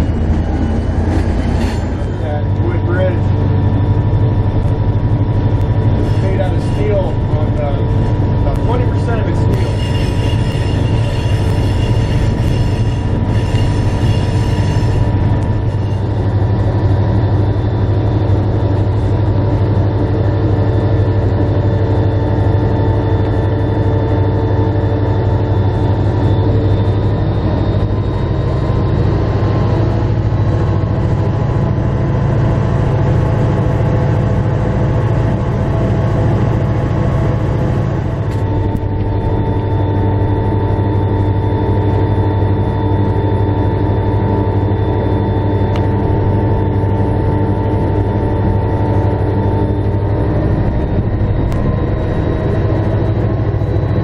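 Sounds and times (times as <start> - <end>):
wheels on rails: 0.0 - 19.6
diesel locomotive engine drone: 0.0 - 54.0
high squeal: 8.6 - 16.7.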